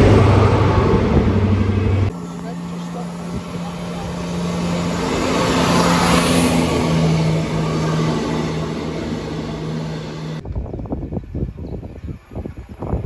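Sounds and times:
diesel train engine drone: 0.0s - 10.9s
train wheel and rail noise: 0.0s - 13.0s
wind rumble on microphone: 10.4s - 13.0s.

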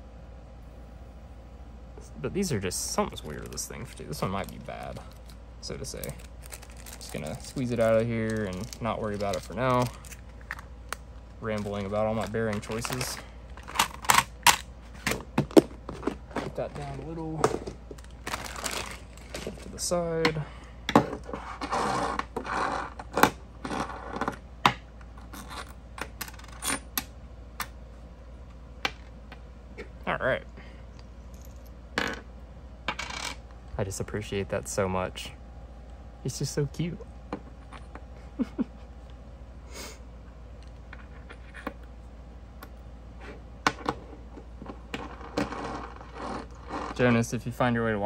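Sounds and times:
low steady hum: 0.0s - 48.0s
rubbing scrapes: 21.2s - 23.0s, 45.2s - 47.0s.

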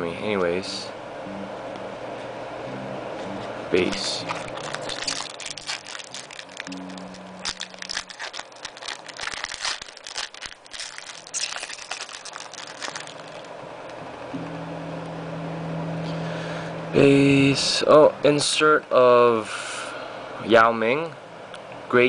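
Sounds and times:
cards being shuffled: 3.8s - 13.5s
foil wrapper crinkling: 3.8s - 13.6s.

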